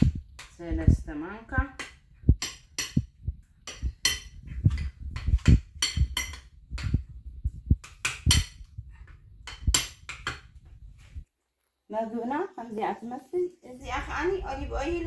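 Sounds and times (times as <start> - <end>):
dishes and cutlery clinking: 2.4 - 7.0, 7.8 - 10.6.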